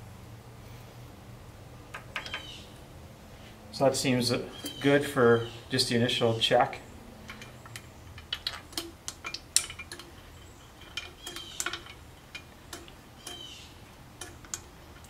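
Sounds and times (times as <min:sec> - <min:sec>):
light metallic clicks: 0:07.2 - 0:15.0.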